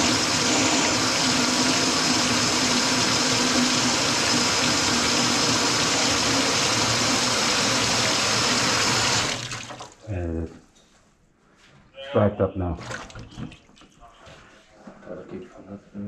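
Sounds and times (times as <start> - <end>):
faucet running into steel sink: 0.0 - 10.0.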